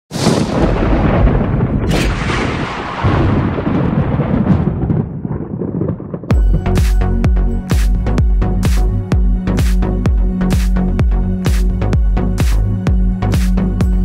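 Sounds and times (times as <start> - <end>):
thunder-like rumbling: 0.1 - 7.3
electronic music with heavy beat: 6.3 - 14.0.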